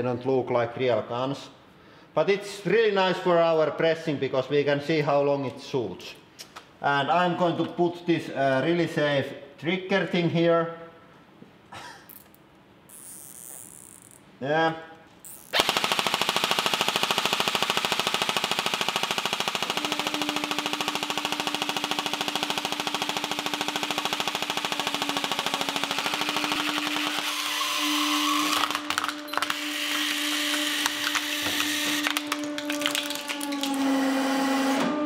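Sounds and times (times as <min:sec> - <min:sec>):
airsoft rifle firing full-auto: 0:15.5 - 0:32.1
plastic cracking and snapping: 0:28.4 - 0:33.8.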